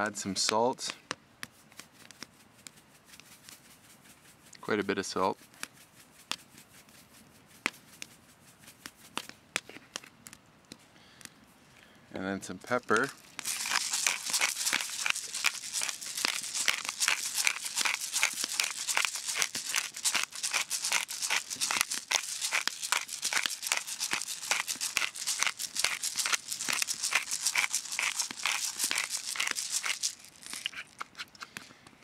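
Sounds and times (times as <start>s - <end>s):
pepper grinder crackling clicks: 13.1s - 31.6s.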